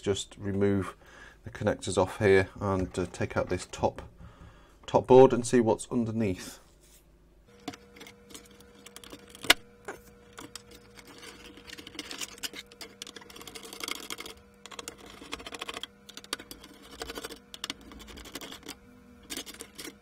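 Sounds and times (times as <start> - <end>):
small plastic clicks and scrapes: 7.6 - 9.6, 10.3 - 20.0.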